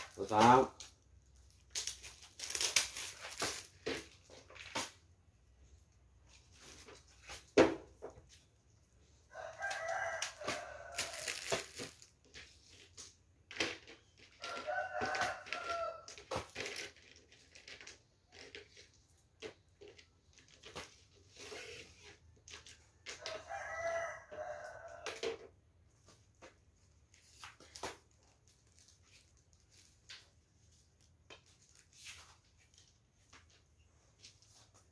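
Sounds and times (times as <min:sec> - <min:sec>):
rooster crowing: 0:09.3 - 0:11.5, 0:14.4 - 0:16.1, 0:23.2 - 0:25.2.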